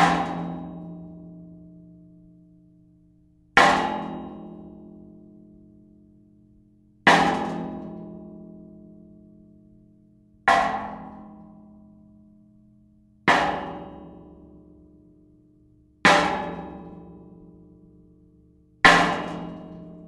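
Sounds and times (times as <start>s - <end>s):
metal object ringing when struck: 10.5s - 11.6s.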